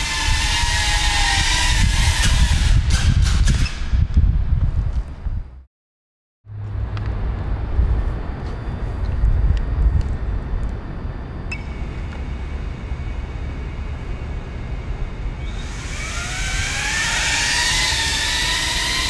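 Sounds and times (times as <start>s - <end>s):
drone motors whining: 0.0s - 2.8s, 8.6s - 19.0s
wind rumbling on microphone: 0.0s - 5.7s, 6.5s - 19.0s.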